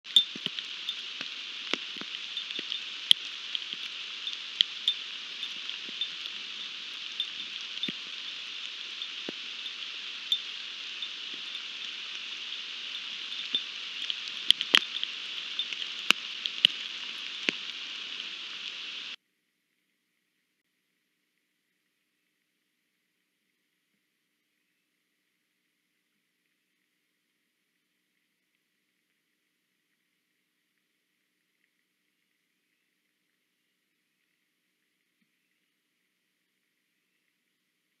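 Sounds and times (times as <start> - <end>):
raindrops ticking close by: 0.1 - 19.2
steady rain hiss: 0.1 - 19.2.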